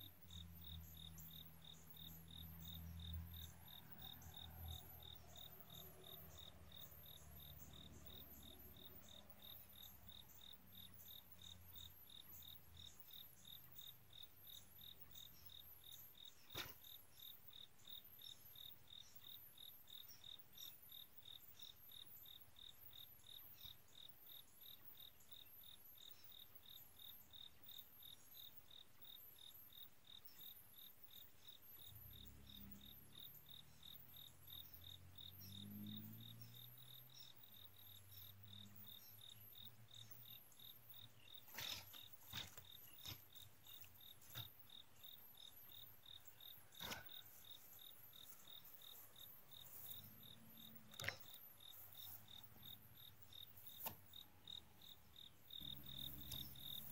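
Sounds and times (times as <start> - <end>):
insects chirping: 0.0 - 56.9.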